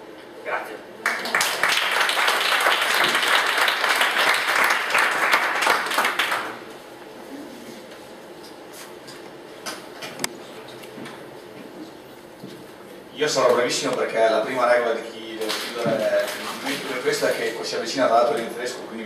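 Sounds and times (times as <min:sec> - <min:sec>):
audience applauding: 0:01.0 - 0:06.6.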